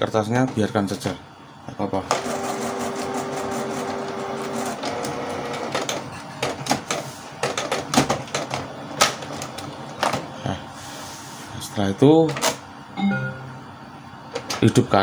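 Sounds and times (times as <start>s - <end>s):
printer motor whirring: 2.1s - 7.1s.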